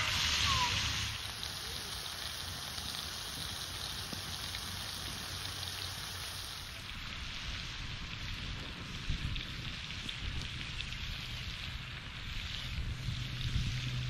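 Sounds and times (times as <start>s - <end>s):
food sizzling in a pan: 0.0s - 14.0s.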